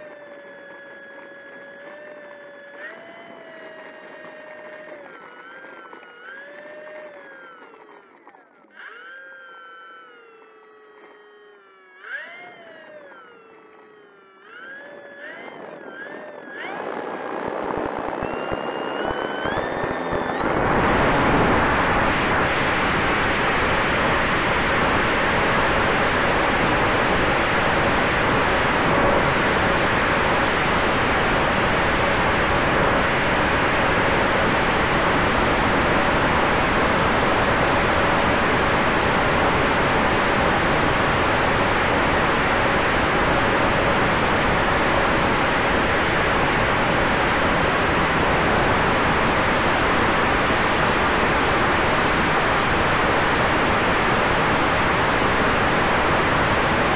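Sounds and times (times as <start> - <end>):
electric motor and propeller hum: 0.0 - 56.9
wind rush: 15.6 - 56.9.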